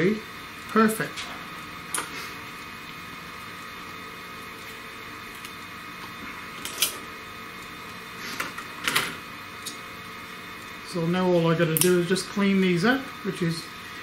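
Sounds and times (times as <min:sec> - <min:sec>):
steady background hum: 0:00.0 - 0:14.0.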